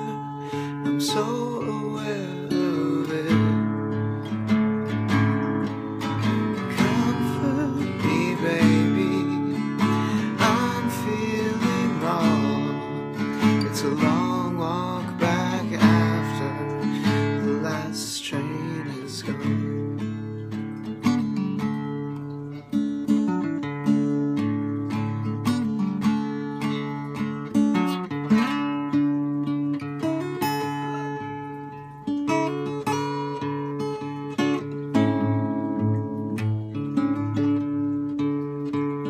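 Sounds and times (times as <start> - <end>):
man singing: 0.0 - 4.0, 6.4 - 20.4
acoustic guitar strumming: 0.0 - 39.0.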